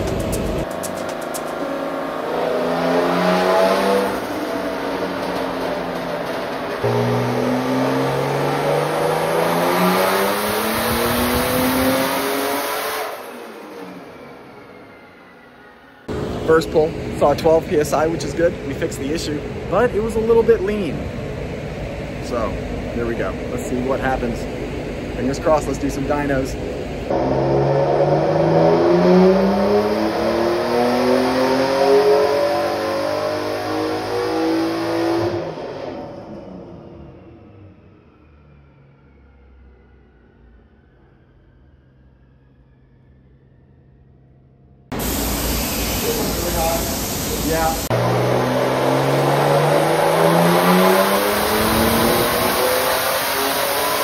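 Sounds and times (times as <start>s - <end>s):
dyno rollers winding down: 0.0s - 54.0s
engine revving at full throttle: 1.8s - 14.2s, 27.1s - 37.7s, 46.1s - 54.0s
turbo whine: 36.2s - 54.0s.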